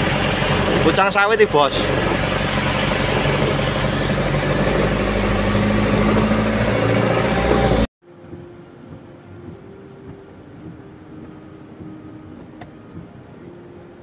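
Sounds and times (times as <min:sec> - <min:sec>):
vehicle driving through floodwater: 0:00.0 - 0:07.9
steady hum inside car: 0:08.1 - 0:14.0.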